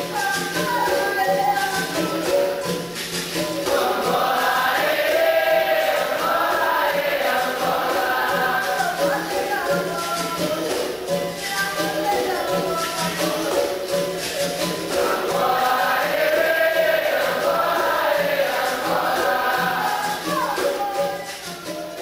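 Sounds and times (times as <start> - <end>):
pandeiro and percussion beat: 0.0 - 22.0
group singing: 3.4 - 22.0.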